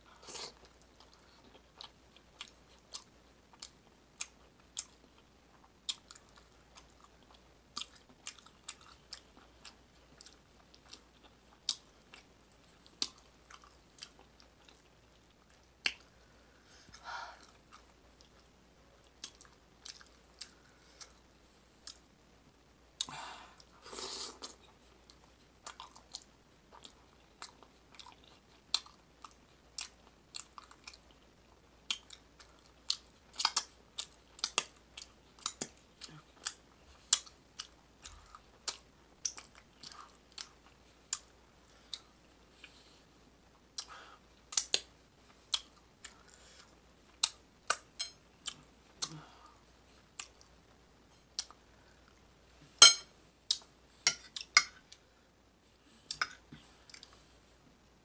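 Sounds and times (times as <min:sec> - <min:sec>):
close chewing mouth sounds: 0:00.2 - 0:22.1, 0:24.3 - 0:52.2.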